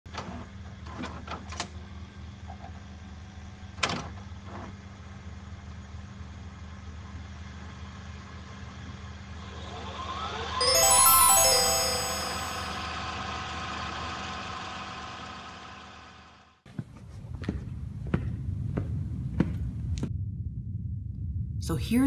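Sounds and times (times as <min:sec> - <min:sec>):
bright chiming tones: 0:10.6 - 0:12.8.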